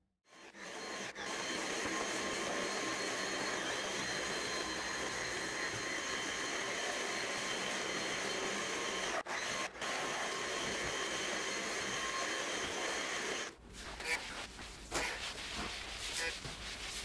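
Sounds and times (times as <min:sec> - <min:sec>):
small motor whirring: 0:00.3 - 0:14.2.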